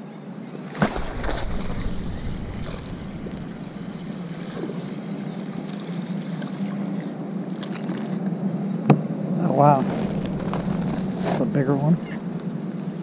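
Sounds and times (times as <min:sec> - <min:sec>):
wind buffeting microphone: 0:00.8 - 0:05.6, 0:09.5 - 0:13.0
steady low hum: 0:00.8 - 0:06.1, 0:08.7 - 0:13.0.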